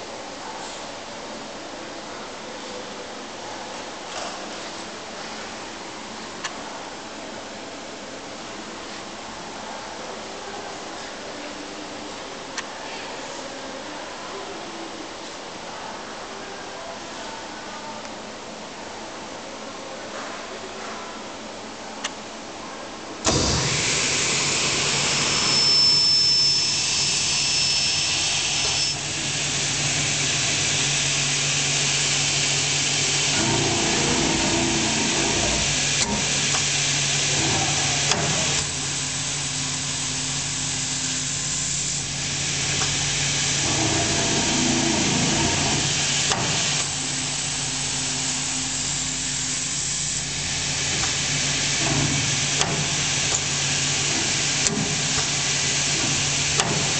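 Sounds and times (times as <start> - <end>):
loud hiss: 23.2 - 37.3
cutting machine motor hum: 23.2 - 40.5, 42.0 - 49.0.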